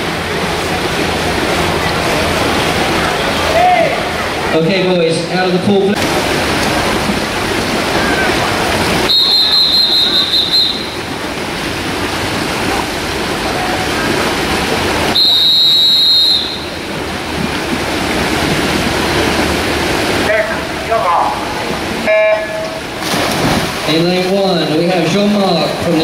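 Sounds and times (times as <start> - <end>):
poolside noise: 0.0 - 26.0
long high whistle blasts: 9.1 - 11.0, 15.1 - 16.8.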